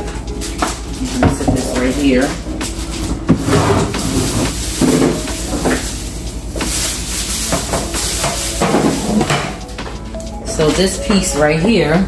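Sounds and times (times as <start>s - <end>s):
steady hiss: 4.0s - 9.4s.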